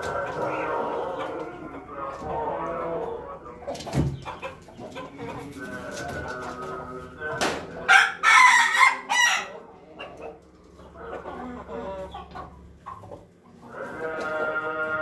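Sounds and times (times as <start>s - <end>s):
chickens clucking: 0.0s - 15.0s
rooster crowing loudly: 7.9s - 9.6s.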